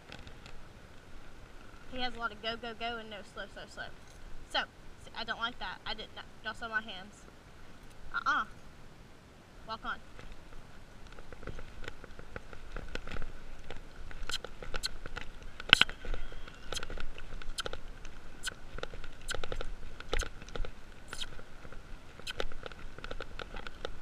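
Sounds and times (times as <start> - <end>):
saddle and bridle clicking and creaking: 0.0 - 2.0, 4.0 - 4.3, 10.1 - 24.0.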